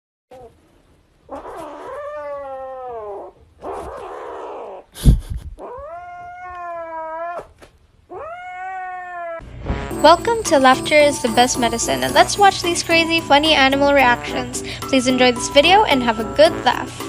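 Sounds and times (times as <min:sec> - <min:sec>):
kitten yowling: 0:01.3 - 0:04.8, 0:05.6 - 0:09.4, 0:11.0 - 0:12.0.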